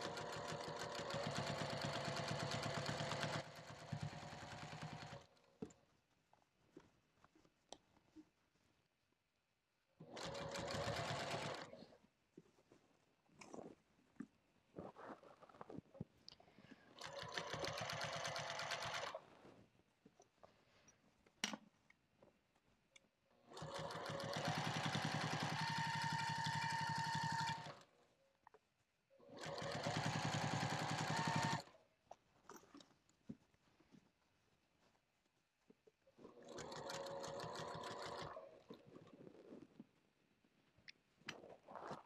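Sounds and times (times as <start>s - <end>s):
sewing machine stitching: 0.0s - 5.4s, 10.0s - 11.8s, 17.0s - 19.2s, 23.4s - 27.9s, 29.2s - 31.7s, 36.3s - 38.6s.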